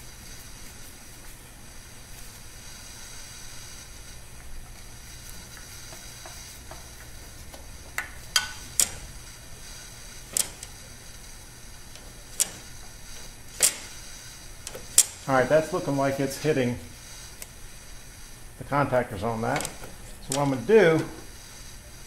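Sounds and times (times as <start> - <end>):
steady hiss: 0.0 - 22.0
machine switch clicks: 13.6 - 13.9.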